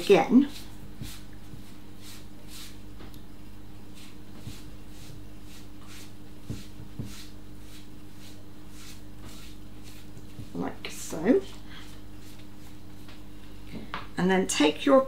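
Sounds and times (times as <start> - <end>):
pastry brush swishing: 0.0 - 2.8, 3.9 - 13.1.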